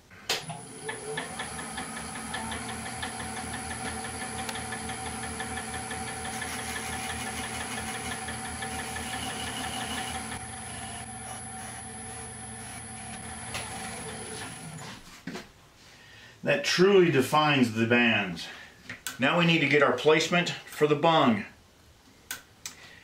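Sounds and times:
wood lathe motor humming: 0.4 - 14.9.

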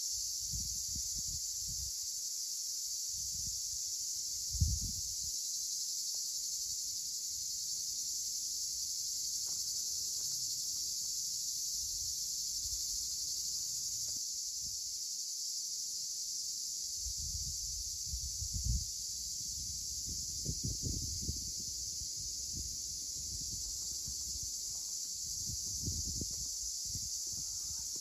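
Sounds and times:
high-pitched insect chorus: 0.0 - 28.0
wind rumble on microphone: 0.4 - 1.9, 3.1 - 3.7, 4.5 - 5.3, 17.0 - 28.0.

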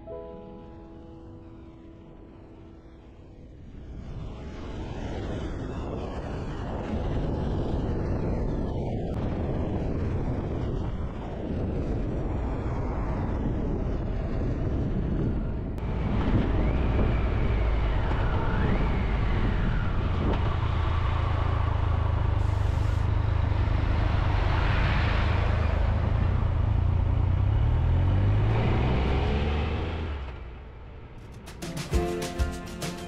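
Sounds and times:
wind and road noise: 0.0 - 33.0
thin whistling whine: 16.4 - 20.2.

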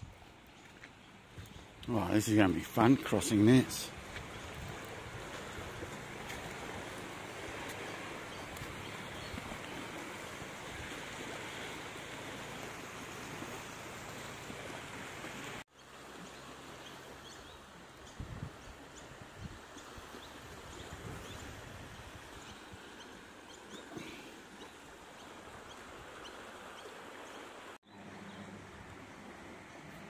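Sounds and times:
river rushing: 0.3 - 18.0.

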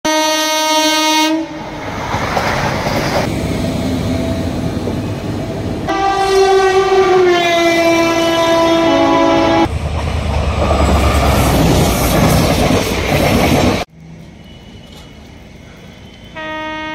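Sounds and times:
train horn: 0.0 - 1.8, 5.9 - 9.7, 16.1 - 16.9
train passing rumble: 1.4 - 16.9.

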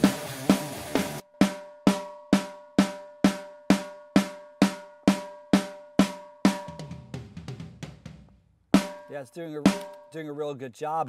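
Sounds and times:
toms ringing low: 1.3 - 7.2, 8.8 - 10.6.

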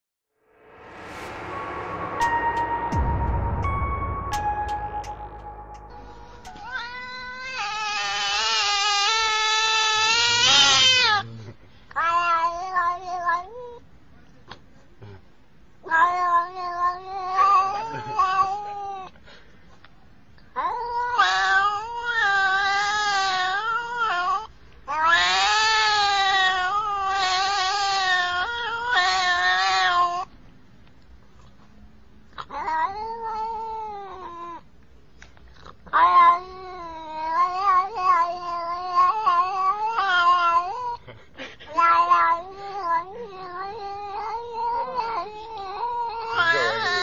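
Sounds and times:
cat meowing: 6.5 - 11.2, 32.4 - 34.6, 35.9 - 41.0, 41.7 - 47.0.

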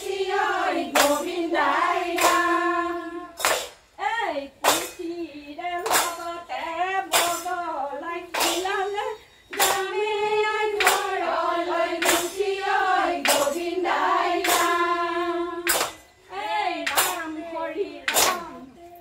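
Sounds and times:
women singing together: 0.0 - 19.0
unison hand claps: 0.5 - 2.8, 3.4 - 3.9, 4.6 - 5.0, 5.8 - 6.4, 7.1 - 7.6, 8.3 - 8.8, 9.5 - 10.0, 10.8 - 11.2, 11.9 - 15.0, 15.6 - 16.1, 16.8 - 17.4, 18.1 - 18.6.

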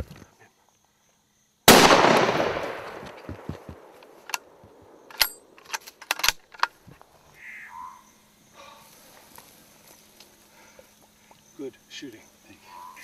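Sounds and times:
rifle shot with echo: 1.7 - 5.0
sharp clicks and knocks: 2.9 - 6.8.

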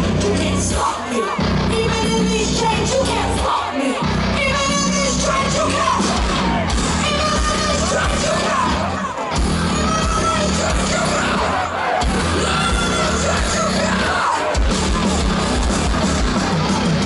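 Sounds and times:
person singing: 0.0 - 6.2, 7.0 - 9.0
live metal band playing: 0.0 - 17.0.

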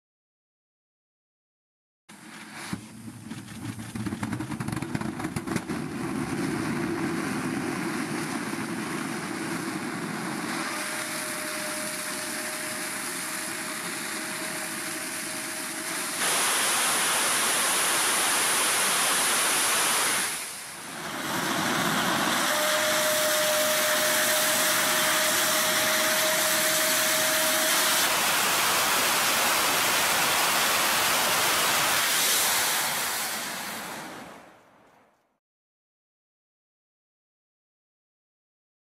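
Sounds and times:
rocket engine roaring: 3.9 - 34.5
whistle-like tone: 10.5 - 16.2, 21.8 - 28.1.

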